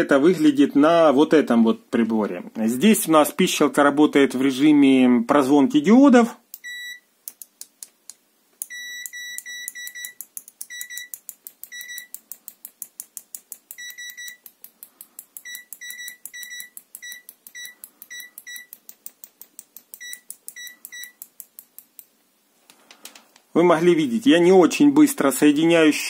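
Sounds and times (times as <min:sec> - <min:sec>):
probe tips clicking: 0:06.5 - 0:23.5
multimeter short high beeps: 0:06.6 - 0:07.0, 0:08.6 - 0:11.1, 0:11.7 - 0:12.1, 0:13.8 - 0:14.4, 0:15.4 - 0:18.7, 0:20.0 - 0:21.2.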